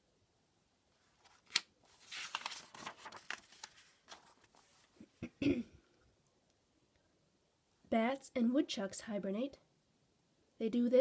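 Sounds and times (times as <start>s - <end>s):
paper rustling: 1.0s - 5.1s
paper page flick: 1.2s - 4.6s.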